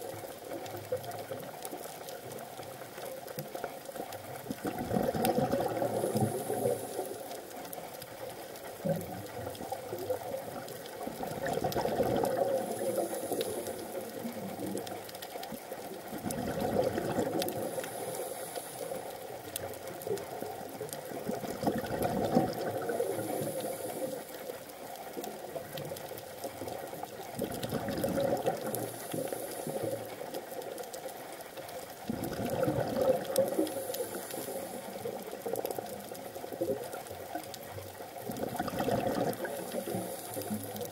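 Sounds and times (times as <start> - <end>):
faint hiss: 0.0 - 40.9
regulator exhaled bubbles gurgling: 4.4 - 7.2, 8.8 - 15.1, 16.1 - 18.3, 20.2 - 24.2, 27.4 - 30.1, 32.0 - 36.0, 38.2 - 40.9.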